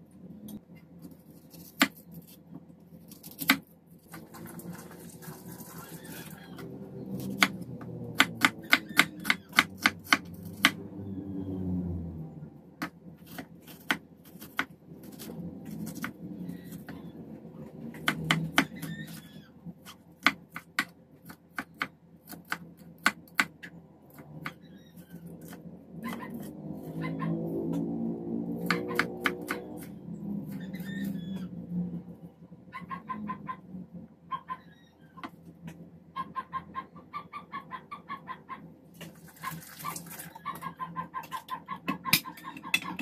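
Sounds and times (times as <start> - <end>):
knife chopping on wooden board: 18.0 - 18.9, 28.6 - 29.7.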